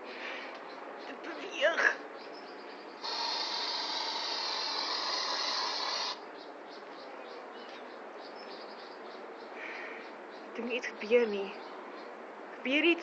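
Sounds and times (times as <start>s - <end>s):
aerosol spray hiss: 3.0s - 6.2s.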